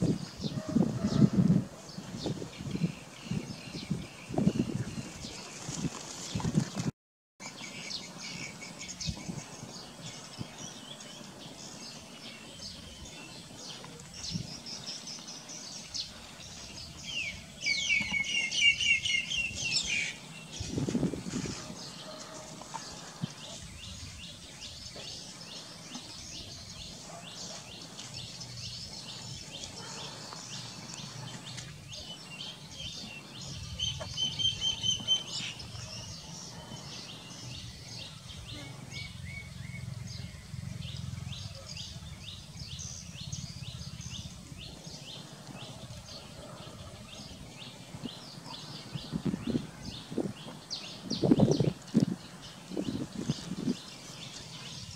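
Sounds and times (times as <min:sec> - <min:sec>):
small birds chirping: 0:00.0 - 0:54.9
whistled bird calls: 0:17.1 - 0:20.2, 0:33.8 - 0:37.0.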